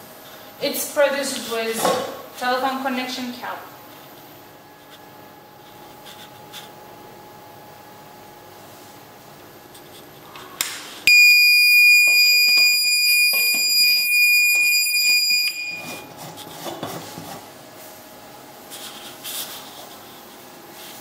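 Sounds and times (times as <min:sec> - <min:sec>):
high-pitched buzzer tone: 0:11.1 - 0:16.1.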